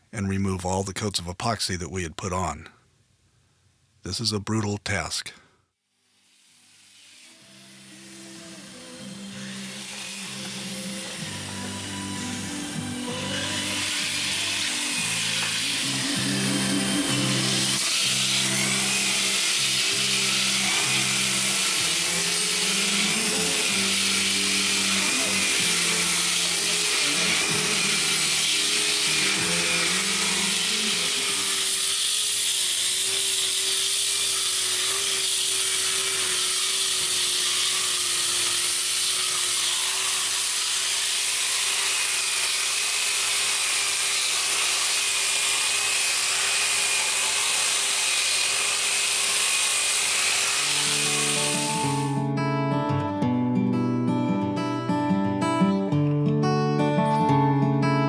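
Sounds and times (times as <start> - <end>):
disc sanders grinding: 6.2 - 52.2.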